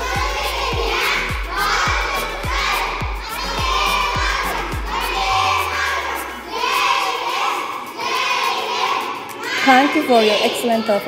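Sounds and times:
backing track drum beat: 0:00.0 - 0:07.1
children singing and shouting: 0:00.0 - 0:11.0.

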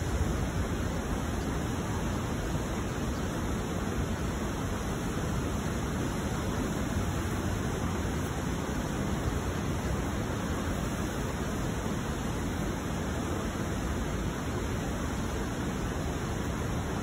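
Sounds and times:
steady rushing noise: 0:00.0 - 0:17.0.

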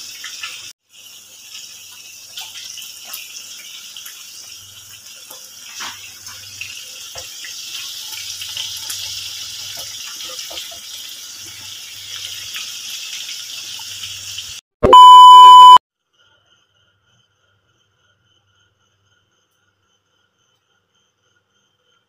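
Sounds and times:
food sizzling in frying pan: 0:00.0 - 0:14.6
test-tone beep: 0:14.8 - 0:15.8.

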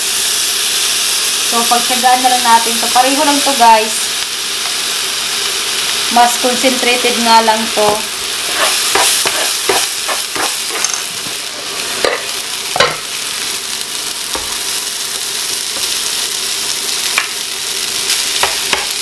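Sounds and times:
onion sizzling in hot oil: 0:00.0 - 0:19.0
spatula scraping and tapping pan: 0:08.5 - 0:13.0.

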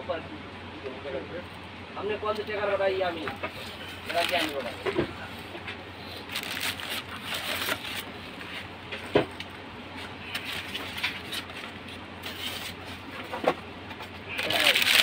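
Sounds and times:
rustling and scraping: 0:03.1 - 0:15.0.

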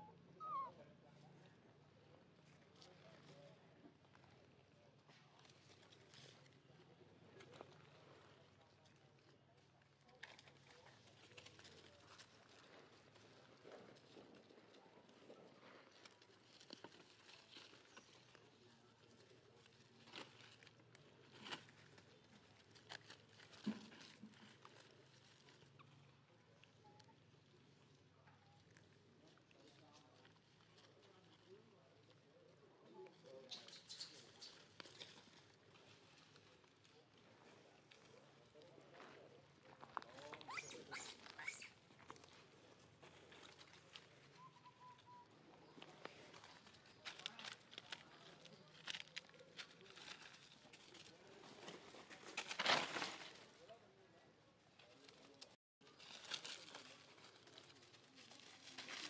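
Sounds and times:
short chirpy monkey calls: 0:00.0 - 0:00.8, 0:40.5 - 0:41.8
crackles of dry leaf litter: 0:02.0 - 0:59.0.

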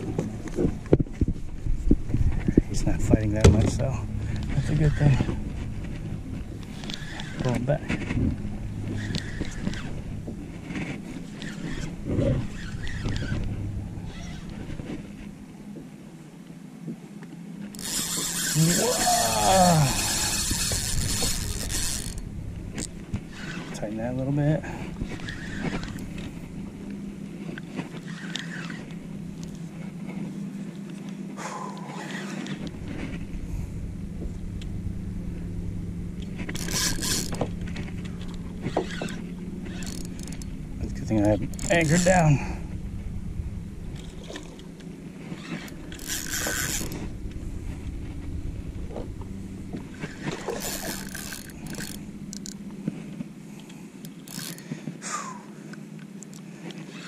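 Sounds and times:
low motor hum: 0:00.0 - 0:57.0
fishing reel cranking: 0:06.6 - 0:07.8, 0:08.8 - 0:10.0, 0:11.3 - 0:14.6, 0:17.7 - 0:23.8, 0:25.1 - 0:26.3, 0:28.0 - 0:29.6, 0:36.5 - 0:42.4, 0:45.3 - 0:47.1, 0:49.9 - 0:52.7, 0:54.0 - 0:54.7.

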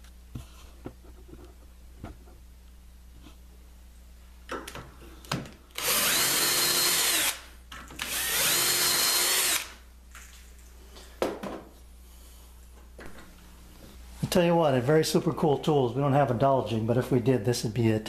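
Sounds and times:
power drill whining: 0:05.8 - 0:07.4, 0:08.0 - 0:09.8.

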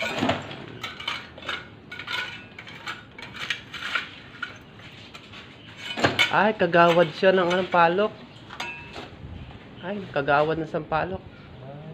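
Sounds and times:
metal tool scraping ceramic rubble: 0:00.0 - 0:04.7, 0:05.6 - 0:08.0.

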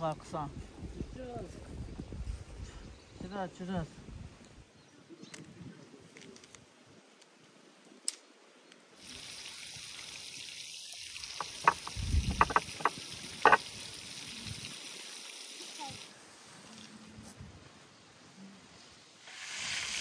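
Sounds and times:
steady hiss: 0:07.3 - 0:20.0
sharp taps: 0:11.4 - 0:13.6.

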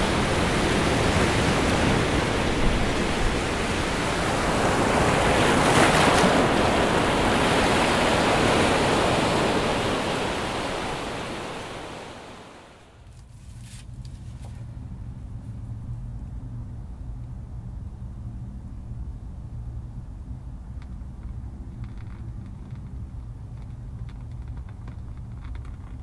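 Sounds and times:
surf breaking over rocks: 0:00.0 - 0:13.0
faint low hum: 0:00.0 - 0:26.0.

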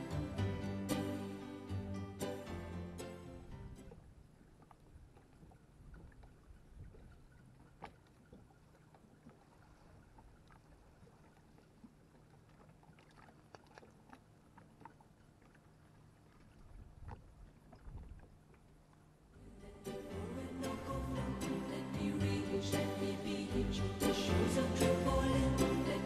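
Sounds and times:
ripples lapping on pebbles: 0:03.9 - 0:19.1.

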